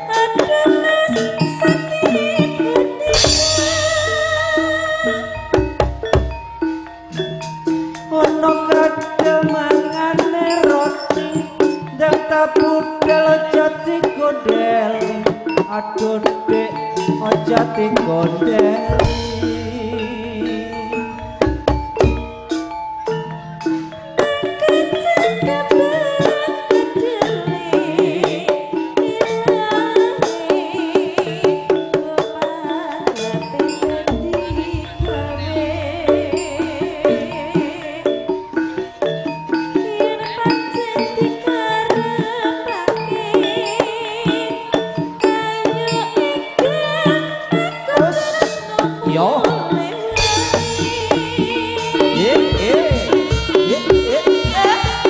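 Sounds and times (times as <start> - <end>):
drums in a busy rhythm: 0.0 - 55.0
gamelan metallophones: 0.0 - 55.0
ringing pitched percussion melody: 0.0 - 55.0
deep resonant low tone: 18.9 - 22.5, 34.0 - 38.3.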